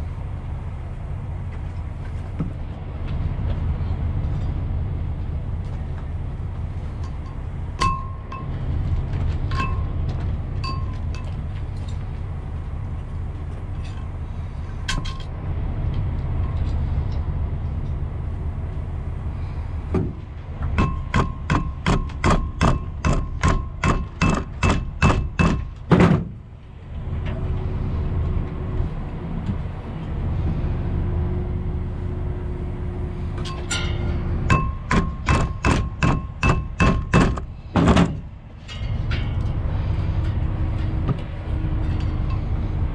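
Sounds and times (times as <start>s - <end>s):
steady low rumble: 0.0s - 42.9s
ringing metal-on-metal blows: 7.0s - 8.6s, 9.5s - 10.0s, 10.6s - 12.0s, 20.8s - 25.8s, 33.4s - 37.4s, 38.6s - 41.0s.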